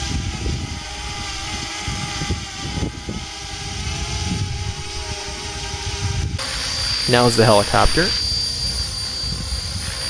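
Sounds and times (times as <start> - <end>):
drone propellers whining: 0.0 - 10.0
low rumble: 3.8 - 6.4.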